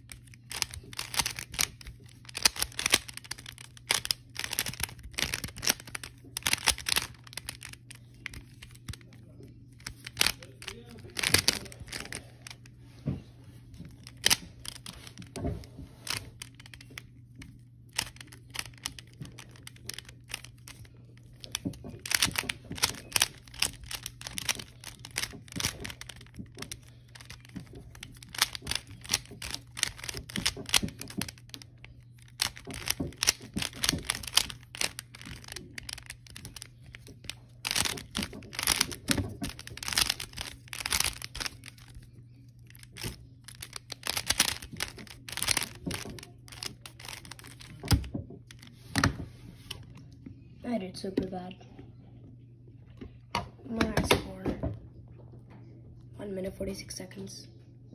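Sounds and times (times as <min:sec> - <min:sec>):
puzzle cube clicking: 0:00.1 - 0:09.1, 0:09.8 - 0:12.6, 0:14.0 - 0:15.4, 0:16.0 - 0:17.1, 0:17.9 - 0:48.1.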